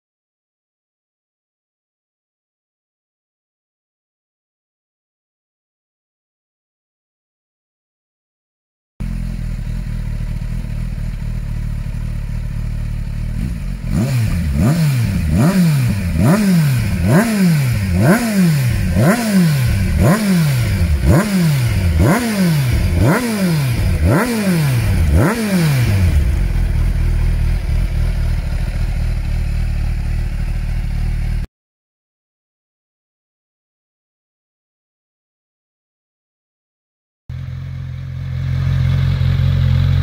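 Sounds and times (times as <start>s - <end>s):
motorcycle engine revving: 9.0s - 31.5s, 37.3s - 40.0s.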